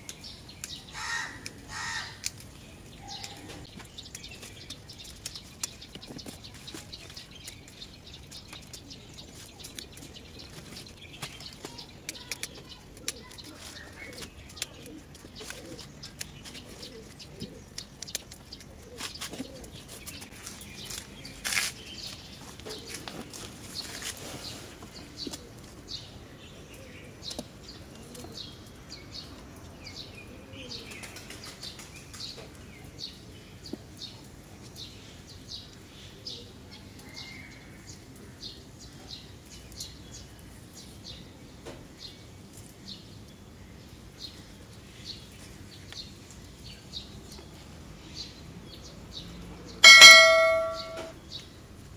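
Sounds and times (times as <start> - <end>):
birds chirping: 0.0 - 37.2, 42.0 - 51.6
plant stems rustling: 1.8 - 25.8.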